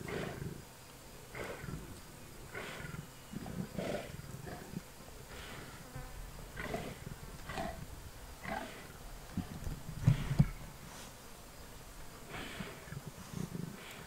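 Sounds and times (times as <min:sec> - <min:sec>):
lions growling: 0:01.3 - 0:05.7, 0:06.6 - 0:10.6, 0:12.3 - 0:14.0.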